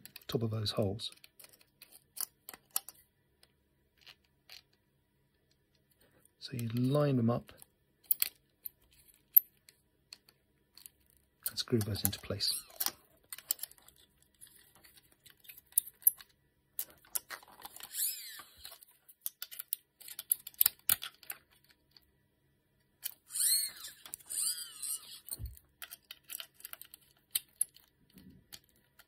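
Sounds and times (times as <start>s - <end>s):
screws grinding into plastic: 17.4s - 18.8s, 23.1s - 25.5s.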